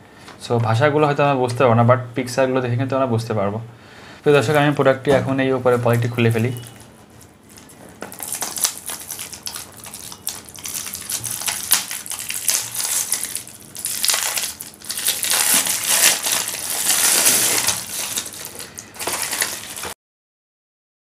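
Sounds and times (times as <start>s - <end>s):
plastic wrapping crinkling: 5.6s - 20.0s.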